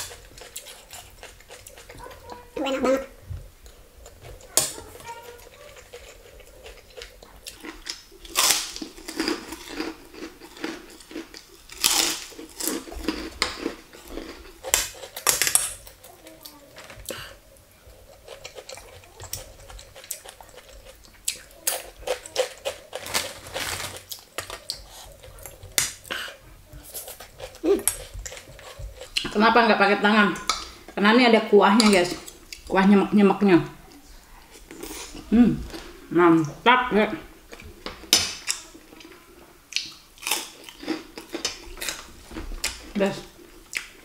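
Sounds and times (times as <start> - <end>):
cracker crunching: 0.0 - 2.6, 3.6 - 29.3, 37.5 - 44.0
chewing: 0.0 - 29.4, 33.8 - 36.5, 37.5 - 44.0.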